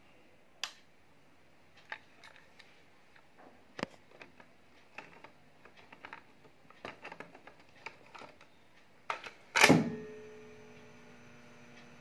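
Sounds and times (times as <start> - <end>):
cassette plastic clicks and rattles: 3.8 - 8.5
tape transport hum: 3.8 - 12.0.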